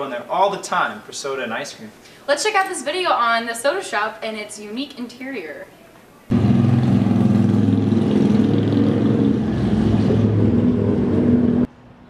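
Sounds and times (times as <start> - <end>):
car engine running: 6.3 - 11.7.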